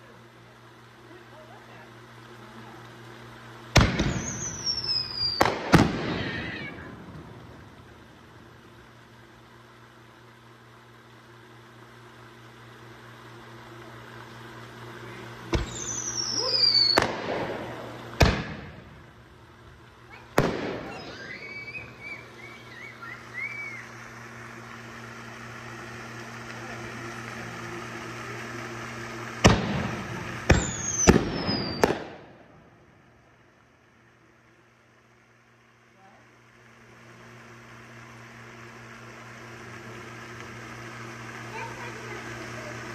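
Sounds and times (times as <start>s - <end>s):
fireworks bangs: 3.7s - 8.5s, 15.4s - 24.0s, 28.1s - 33.0s
high whistles falling in pitch: 4.0s - 5.5s, 15.6s - 17.1s, 20.7s - 24.3s, 30.5s - 32.0s.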